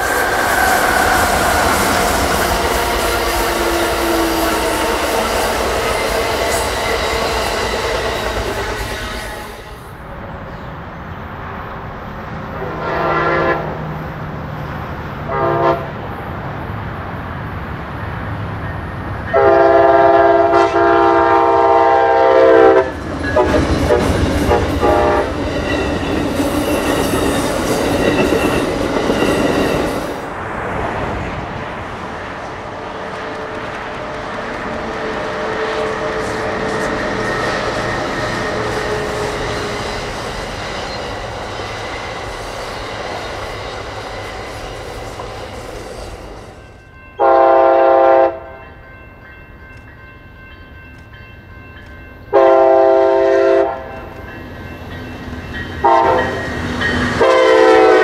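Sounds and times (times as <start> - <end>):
train wheels clacking on rails: 0.0 - 9.9, 18.0 - 30.4, 31.2 - 47.4, 48.7 - 58.0
train air horn: 0.0 - 10.0, 12.6 - 13.9, 15.3 - 16.0, 19.3 - 25.4, 47.2 - 48.6, 52.3 - 54.1, 55.8 - 58.0
locomotive engine rumbling: 0.0 - 11.2, 11.8 - 47.4.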